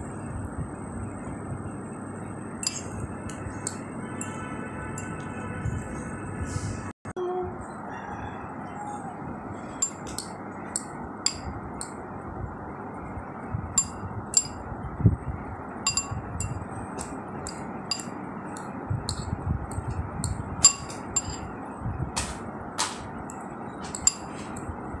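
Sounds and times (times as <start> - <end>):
utensil clinking against a bowl: 2.6 - 5.2, 9.8 - 12.0, 13.8 - 14.6, 15.9 - 21.5, 23.3 - 24.7.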